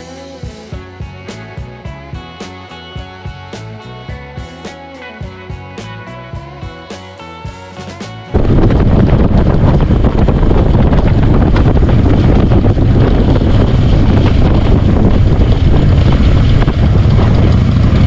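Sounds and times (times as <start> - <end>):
motorcycle engine running: 0.0 - 18.0
wind buffeting microphone: 8.3 - 18.0.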